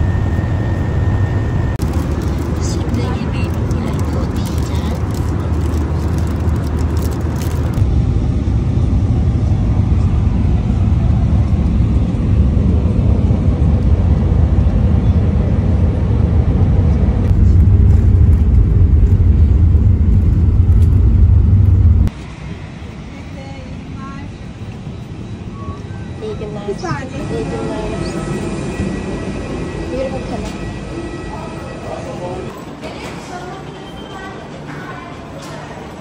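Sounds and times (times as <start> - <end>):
jet engines rumbling in cabin: 0.0 - 32.8
rushing air: 15.6 - 23.0.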